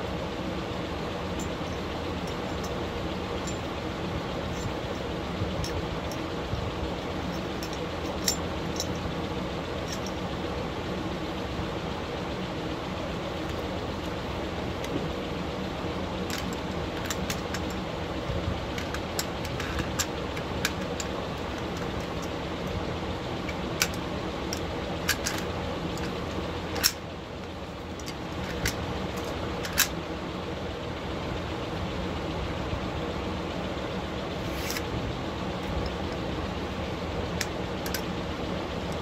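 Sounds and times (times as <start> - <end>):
metallic rifle parts clicking: 4.5 - 6.3, 7.2 - 9.1, 9.8 - 10.2, 23.4 - 27.0, 28.0 - 30.0, 37.4 - 38.1.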